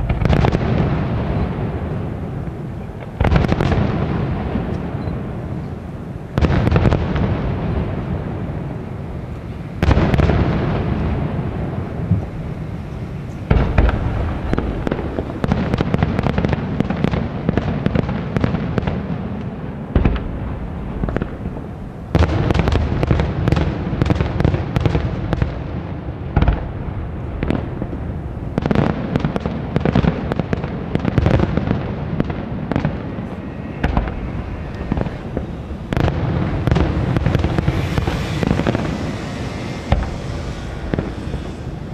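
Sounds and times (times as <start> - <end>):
rapid firework cracks and bangs: 0.0 - 4.9, 6.3 - 12.7, 13.5 - 41.9
firework shell bursts: 33.0 - 41.9.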